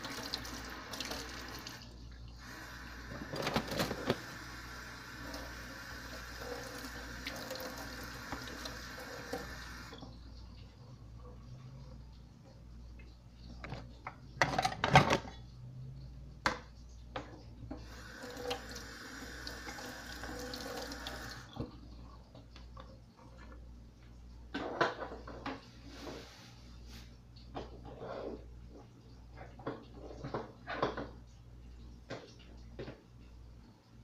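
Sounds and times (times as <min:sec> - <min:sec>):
knocks and clatter at sink: 0:13.6 - 0:15.4, 0:24.5 - 0:25.6, 0:29.4 - 0:31.2.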